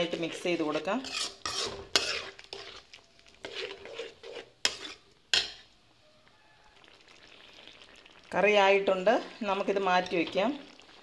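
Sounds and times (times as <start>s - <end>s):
ladle stirring thick curry: 0.0s - 5.7s.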